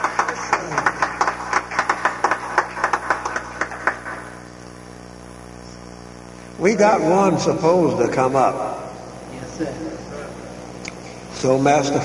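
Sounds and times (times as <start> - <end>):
small audience clapping: 0.0 - 4.5.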